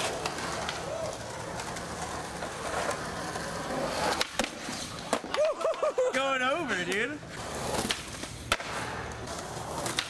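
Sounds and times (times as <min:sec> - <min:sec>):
skateboard clack: 0:00.0 - 0:10.0
skateboard wheels rolling on concrete: 0:00.0 - 0:10.0.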